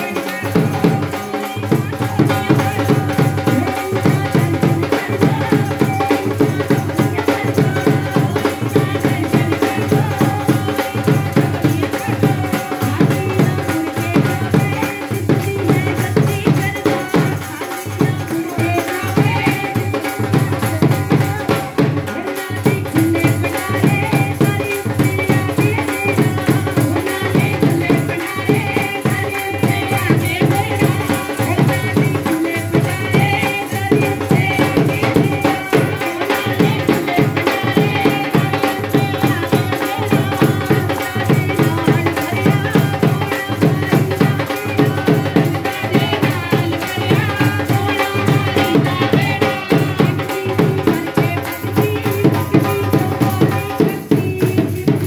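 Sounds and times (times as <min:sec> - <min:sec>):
hand drum beat: 0:00.0 - 0:55.0
women singing: 0:00.0 - 0:55.0.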